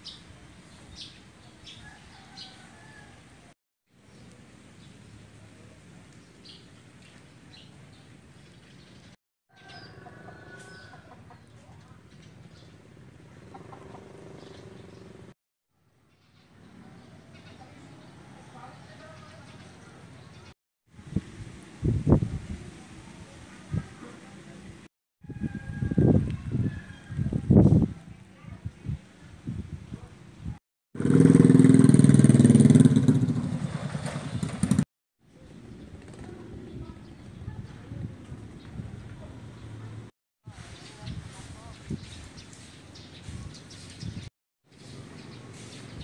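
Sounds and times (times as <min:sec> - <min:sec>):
faint outdoor background noise: 0:00.0 - 0:30.6, 0:35.2 - 0:46.0
motorcycle engine running: 0:31.0 - 0:34.8.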